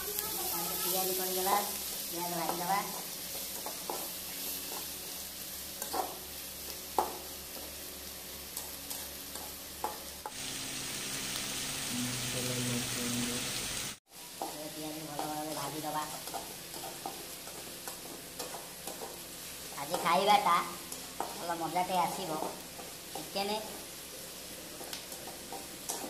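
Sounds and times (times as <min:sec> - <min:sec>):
onions sizzling in hot oil: 0:00.0 - 0:26.0
metal spatula scraping a pan: 0:15.2 - 0:23.4, 0:24.8 - 0:26.0.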